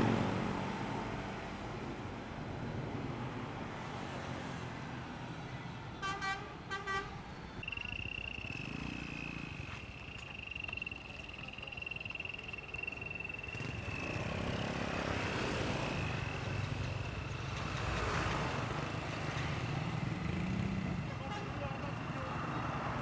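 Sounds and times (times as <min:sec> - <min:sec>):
cars passing: 0:00.0 - 0:05.7, 0:06.5 - 0:23.0
bus diesel engine approaching: 0:00.0 - 0:05.9, 0:07.2 - 0:23.0
steady high tone: 0:07.6 - 0:16.8
motorcycle passing: 0:07.6 - 0:21.1.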